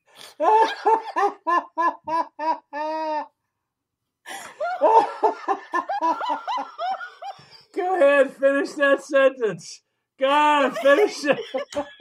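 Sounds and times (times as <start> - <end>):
people laughing hard: 0.4 - 3.4, 4.3 - 8.4, 10.5 - 12.0.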